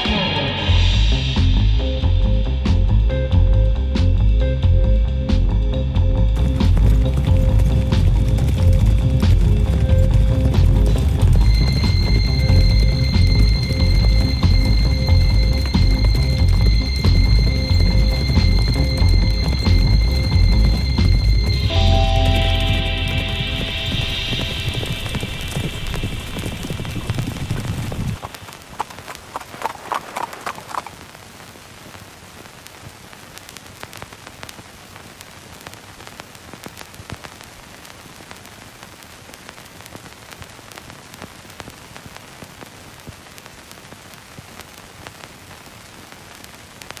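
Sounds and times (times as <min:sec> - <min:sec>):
faint crackling hiss: 0:05.4 - 0:47.0
low rumble: 0:05.6 - 0:28.2
horse hooves clip-clopping: 0:06.2 - 0:31.5.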